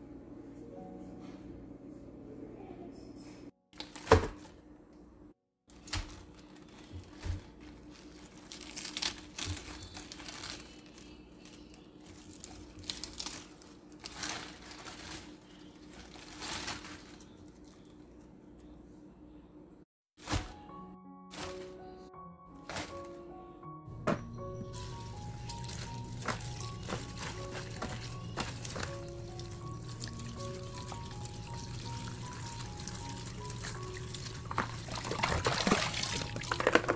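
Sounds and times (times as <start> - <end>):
lettuce leaves tearing: 5.8 - 15.3.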